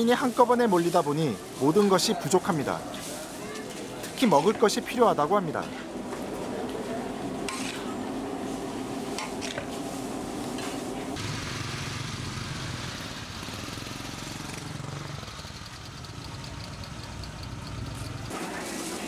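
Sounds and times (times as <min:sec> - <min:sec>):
metal spatula scraping a wok: 0:07.4 - 0:08.0.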